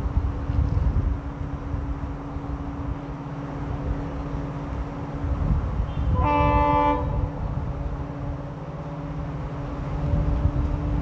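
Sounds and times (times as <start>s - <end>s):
diesel locomotive engine rumble: 0.0s - 11.0s
locomotive horn: 5.9s - 7.4s.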